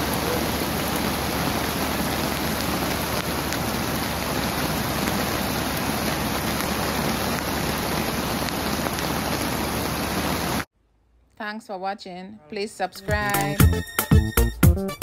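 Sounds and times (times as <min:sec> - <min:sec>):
river rushing: 0:00.0 - 0:10.7.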